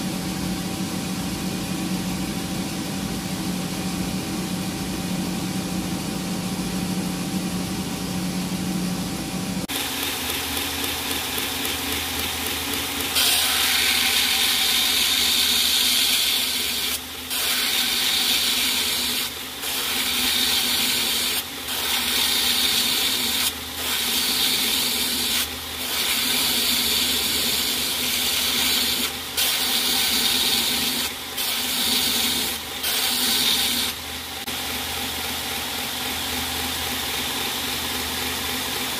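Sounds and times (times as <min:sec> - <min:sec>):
steady machine hum: 0:00.0 - 0:38.9
belt grinder grinding metal: 0:09.7 - 0:34.0
belt grinder running: 0:09.7 - 0:37.4.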